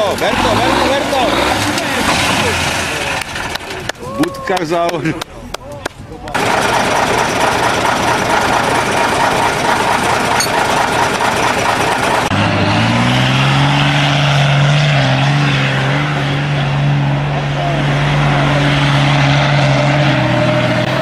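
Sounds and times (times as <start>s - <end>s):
truck engine running rough: 0.0s - 4.1s, 6.2s - 21.0s
truck driving: 0.0s - 21.0s.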